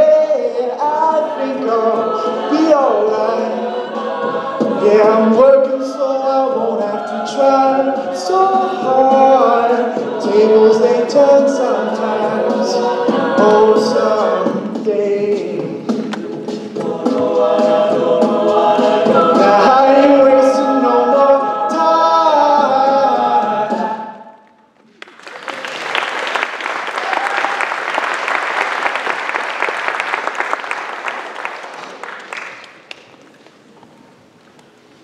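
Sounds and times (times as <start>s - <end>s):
a cappella group singing: 0.0s - 24.4s
audience applauding: 24.8s - 33.3s.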